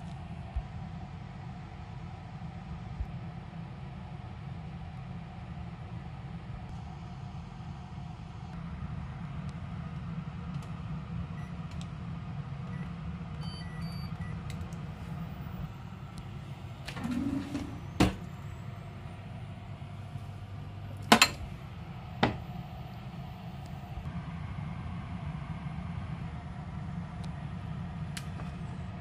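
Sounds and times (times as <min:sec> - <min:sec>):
steady low hum: 0:00.0 - 0:29.0
cooktop control panel beeps: 0:12.7 - 0:14.4.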